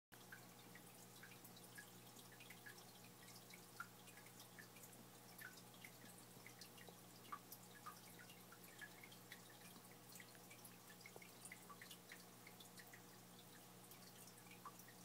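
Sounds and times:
aquarium water dripping: 0.2 - 15.0
low steady hum: 0.2 - 15.0.

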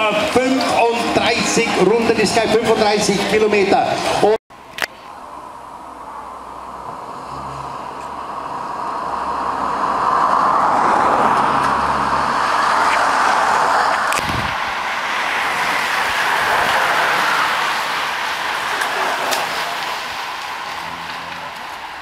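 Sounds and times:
bicycles whirring past: 5.6 - 22.0
car driving past: 6.0 - 22.0.

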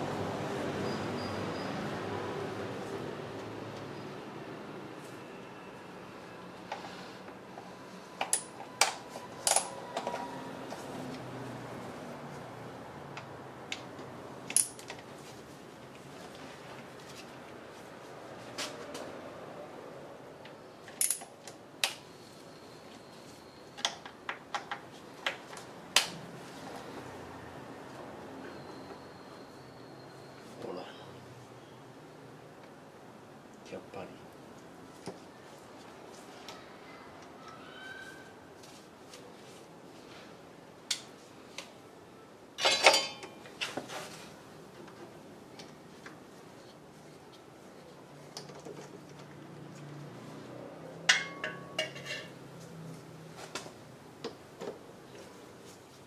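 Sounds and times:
metal hand tools clinking: 42.6 - 43.4, 51.1 - 52.4
ringing metallic clatter: 51.1 - 52.4.

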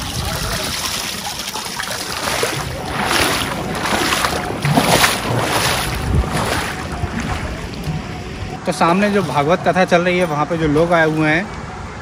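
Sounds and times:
wind noise on microphone: 0.0 - 9.8
water pouring and splashing: 0.0 - 10.1.

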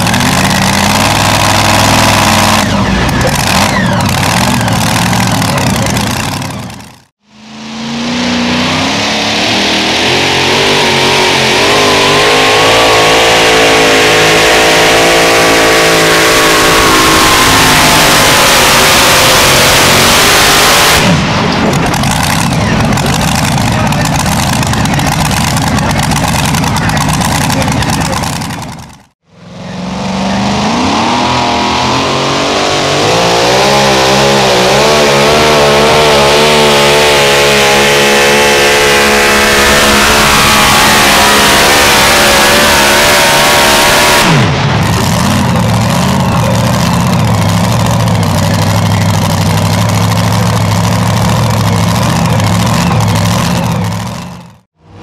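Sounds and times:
truck engine at full throttle: 0.0 - 55.0
engine idling low: 21.4 - 29.1, 44.8 - 54.6.

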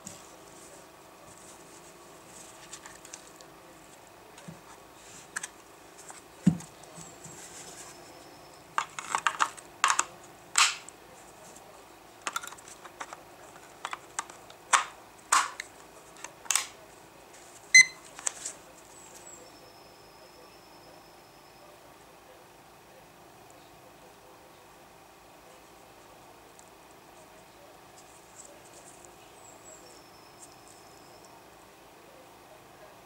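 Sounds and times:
short electronic beep: 17.8 - 18.0.

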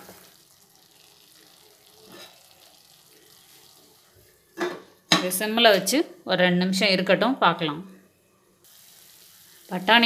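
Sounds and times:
gravy simmering with soft bubbling: 0.0 - 4.6.

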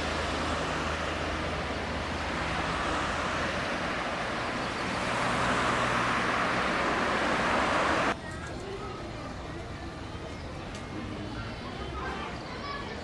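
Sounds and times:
car passing on road: 0.0 - 8.2.

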